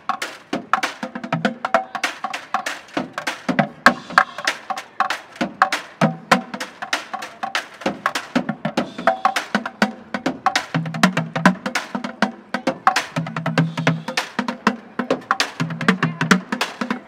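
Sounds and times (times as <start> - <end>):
bucket drumming with sticks: 0.0 - 17.0.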